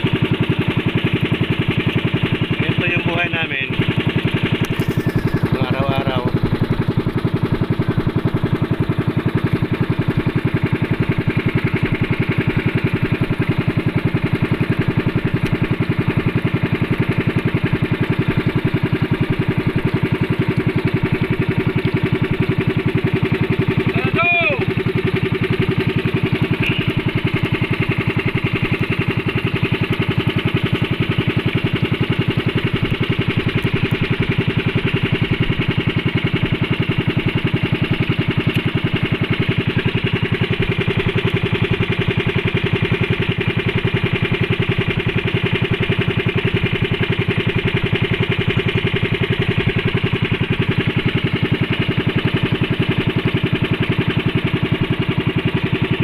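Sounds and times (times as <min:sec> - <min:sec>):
small boat engine running: 0:00.0 - 0:56.0.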